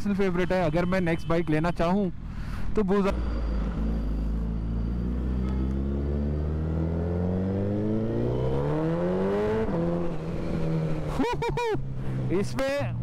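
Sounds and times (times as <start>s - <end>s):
motorcycle engine revving: 3.1s - 12.4s.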